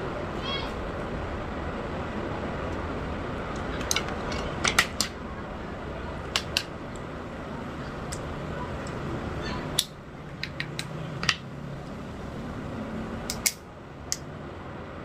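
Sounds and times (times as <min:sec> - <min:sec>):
steady background hiss: 0:00.0 - 0:15.0
sharp clicks of hard objects: 0:03.6 - 0:05.2, 0:06.3 - 0:07.0, 0:09.8 - 0:12.0, 0:13.2 - 0:14.3.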